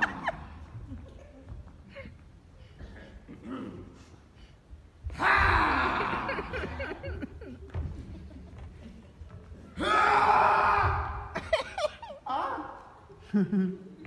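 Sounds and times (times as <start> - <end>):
audience laughing: 0.0 - 1.2, 5.9 - 9.2.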